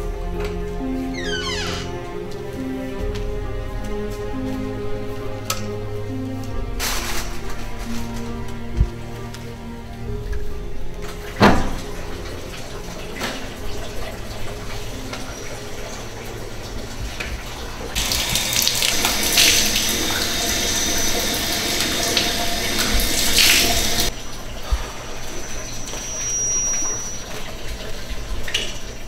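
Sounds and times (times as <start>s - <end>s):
water running from tap: 11.2s - 29.0s.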